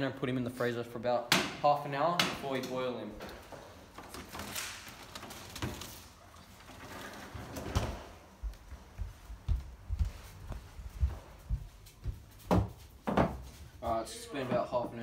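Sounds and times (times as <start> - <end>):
footsteps on wooden floor: 8.1 - 13.8.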